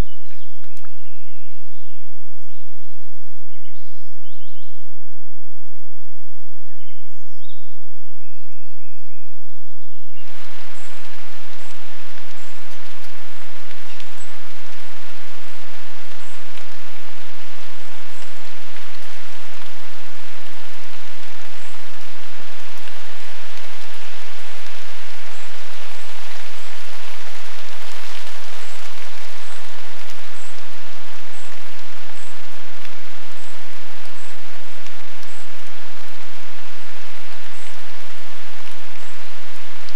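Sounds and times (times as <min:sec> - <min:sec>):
steady rain hiss: 0:10.0 - 0:39.9.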